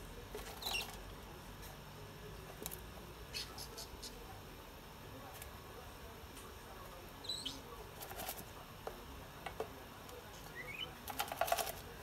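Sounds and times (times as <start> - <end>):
bird chirping: 7.2 - 7.7, 10.5 - 11.0
plastic tub clicking and rattling: 11.1 - 11.9.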